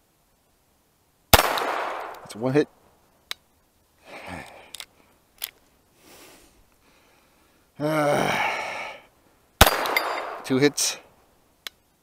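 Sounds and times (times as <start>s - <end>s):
pistol metallic clicks: 1.4s - 2.3s, 4.7s - 5.6s, 9.6s - 10.6s
person grunting or sighing: 4.0s - 4.7s, 7.8s - 9.0s.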